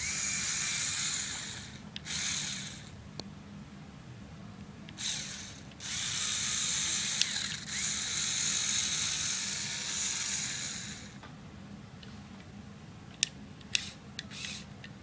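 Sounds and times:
small electric motors whirring: 0.0s - 3.0s, 5.0s - 11.2s.

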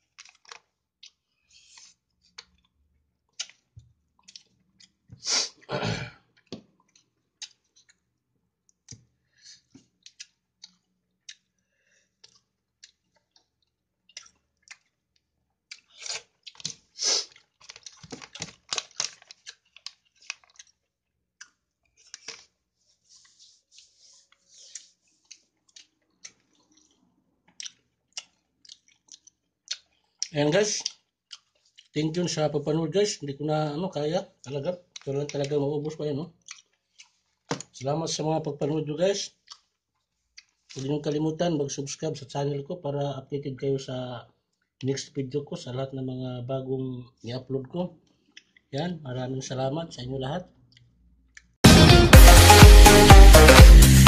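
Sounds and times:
small crackling clicks: 0.0s - 1.2s, 17.5s - 22.5s
chewing and mouth sounds: 0.0s - 5.7s, 6.3s - 8.1s, 8.7s - 22.6s, 23.2s - 32.0s, 34.4s - 37.8s, 39.3s - 41.0s, 48.0s - 48.7s.

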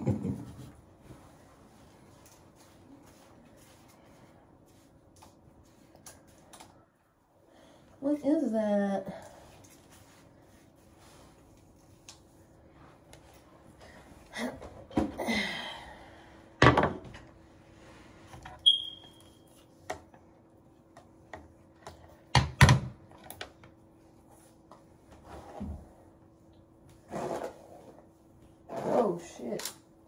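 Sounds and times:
brief high chirp: 18.7s - 19.2s.

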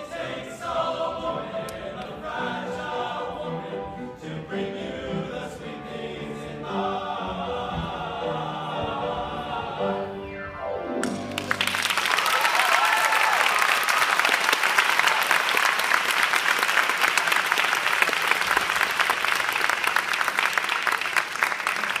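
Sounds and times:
audience applauding: 11.0s - 22.0s
people whooping: 11.4s - 15.6s.

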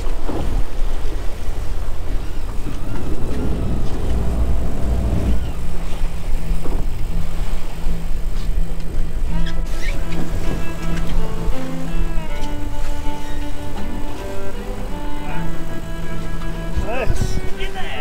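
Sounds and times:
outboard motors rumbling: 0.0s - 18.0s
waves splashing: 0.0s - 18.0s
wind buffeting microphone: 0.0s - 18.0s
steady low hum: 2.2s - 9.3s.

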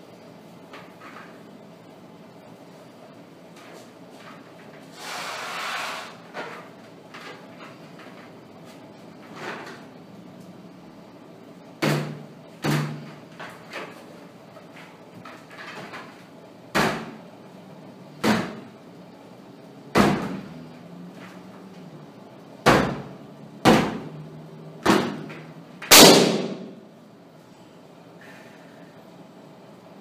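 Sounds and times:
balloon bursting bang: 25.9s - 26.8s.

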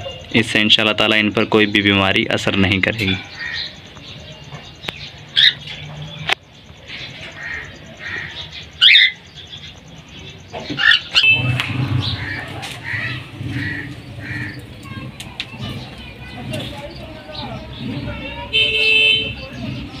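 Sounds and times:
bird chirps: 0.0s - 20.0s
bird squawk: 3.1s - 3.8s, 5.3s - 5.8s, 7.1s - 9.2s, 10.6s - 16.6s
low pulsing bird call: 7.0s - 20.0s.

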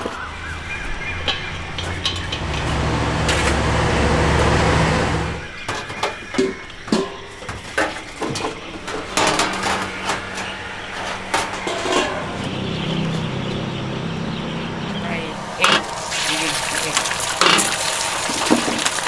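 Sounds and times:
traffic engine hum: 0.0s - 19.0s
dishes and utensils clinking: 1.1s - 3.0s, 5.7s - 12.6s.

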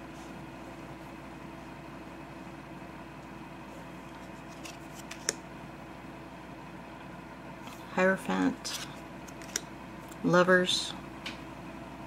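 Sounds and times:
steady background hum: 0.0s - 12.0s
faint card sliding clicks: 4.0s - 5.4s.

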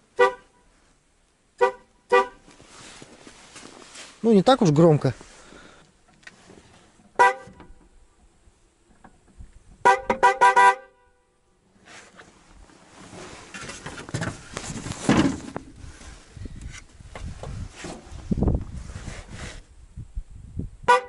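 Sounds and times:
car horn beeping: 0.1s - 0.8s, 1.6s - 2.5s, 7.2s - 7.9s, 9.8s - 11.4s
rustling: 2.4s - 7.1s, 11.8s - 19.7s.

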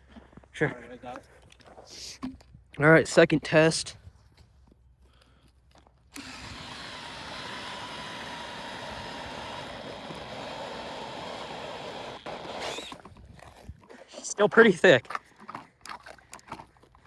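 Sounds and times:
power ice auger running: 6.1s - 13.1s.

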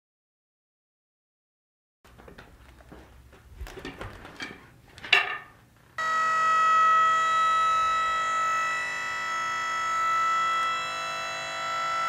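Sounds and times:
sawmill high-pitched whine: 6.0s - 12.0s.

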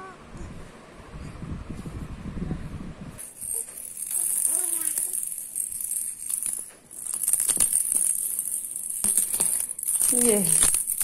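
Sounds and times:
plastic ball rattle shaken: 3.2s - 11.0s.

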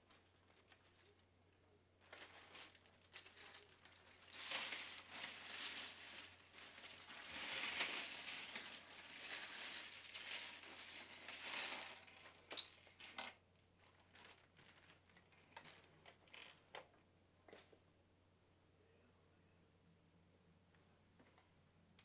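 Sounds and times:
plastic pieces rattling in bag: 0.0s - 1.2s, 2.0s - 16.6s.

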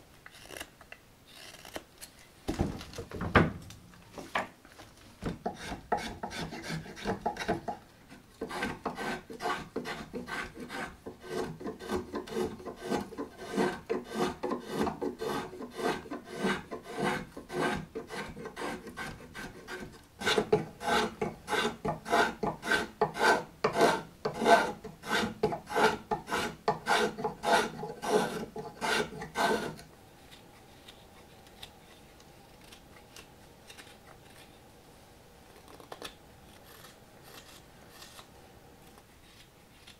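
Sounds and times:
blade shaving wood: 8.4s - 29.8s.

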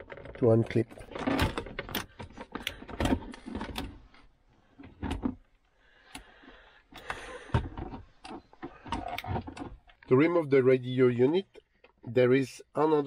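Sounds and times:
plastic clicks and rattles: 0.0s - 6.3s.

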